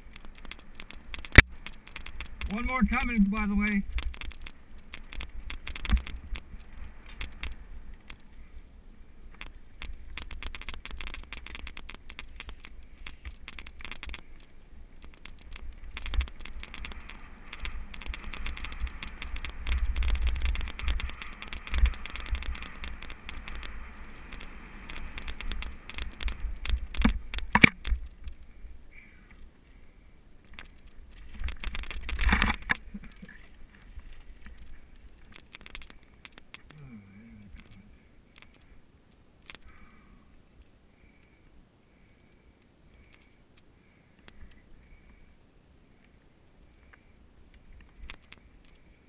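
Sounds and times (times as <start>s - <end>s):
bike rattling clicks: 0.0s - 3.2s, 3.8s - 8.3s, 9.3s - 28.5s, 30.5s - 36.7s.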